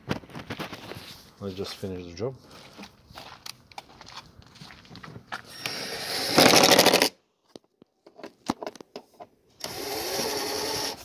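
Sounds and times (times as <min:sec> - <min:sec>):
impact driver running: 0:05.5 - 0:07.1, 0:09.6 - 0:11.0.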